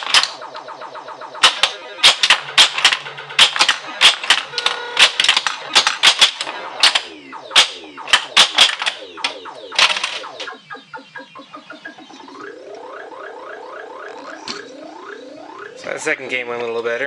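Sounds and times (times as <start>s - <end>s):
pinball flippers clacking: 0.0s - 0.4s, 1.4s - 10.5s
electronic falling-pitch chirps: 0.0s - 5.0s, 6.4s - 16.4s.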